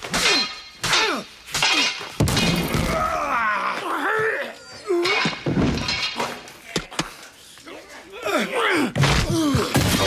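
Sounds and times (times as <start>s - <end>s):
men groaning and yelling: 2.8s - 5.4s, 7.0s - 10.0s.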